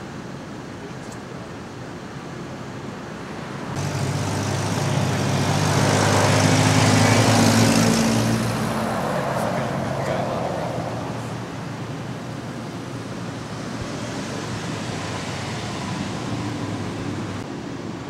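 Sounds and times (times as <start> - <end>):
vehicle driving past: 3.7 - 11.8.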